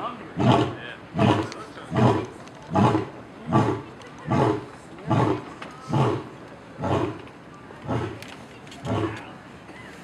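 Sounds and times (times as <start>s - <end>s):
lion grunting roars: 0.4s - 7.2s.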